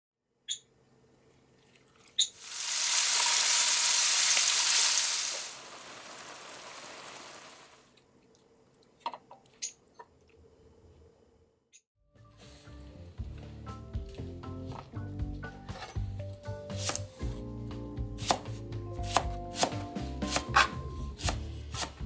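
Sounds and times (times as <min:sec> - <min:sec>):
chicken sizzling in hot oil: 0:02.3 - 0:07.9.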